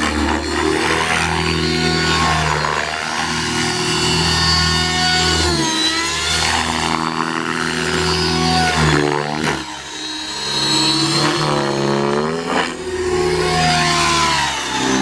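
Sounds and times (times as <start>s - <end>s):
rc helicopter rotor whine: 0.0s - 15.0s.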